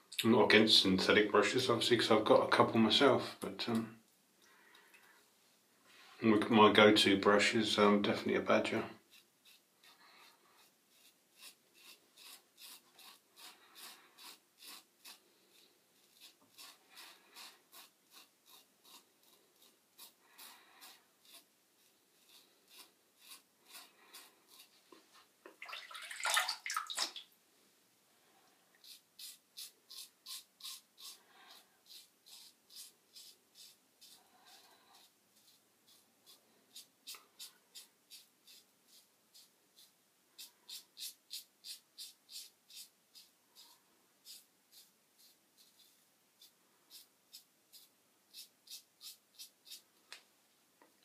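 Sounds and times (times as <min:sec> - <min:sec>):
running water: 0:25.5 - 0:27.4.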